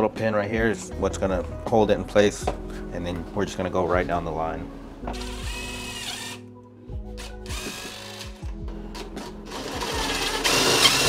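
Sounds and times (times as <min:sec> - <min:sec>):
impact driver drilling: 0:05.2 - 0:06.4, 0:07.4 - 0:08.3, 0:09.2 - 0:11.0.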